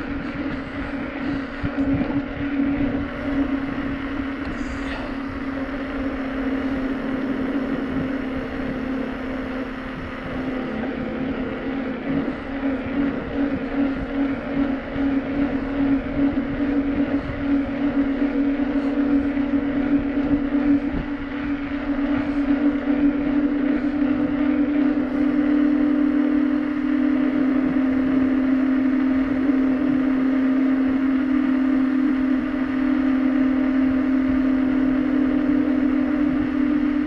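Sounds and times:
bicycle tyre hum on asphalt: 0.0 - 37.0
wind buffeting microphone: 0.0 - 37.0.

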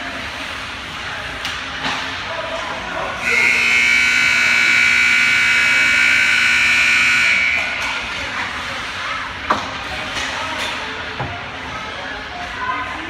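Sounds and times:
arena background noise: 0.0 - 13.0
scoreboard buzzer blast: 3.2 - 7.9.

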